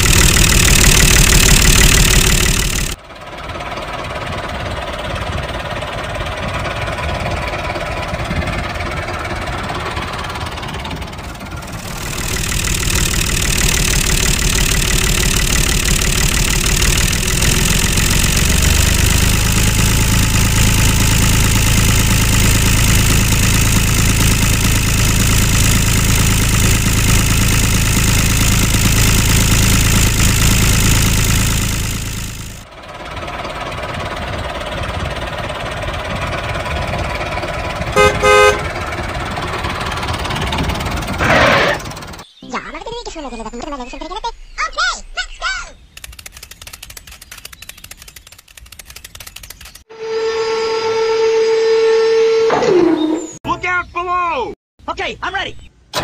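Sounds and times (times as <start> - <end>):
low hum: 0.0 - 41.2
tractor engine running: 0.0 - 42.4, 45.8 - 49.9.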